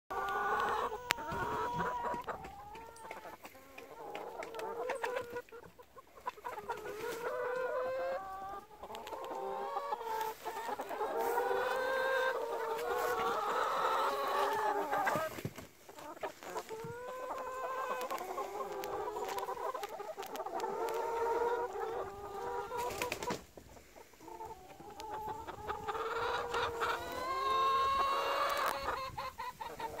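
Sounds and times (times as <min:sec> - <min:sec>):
chickens clucking: 0:00.1 - 0:30.0.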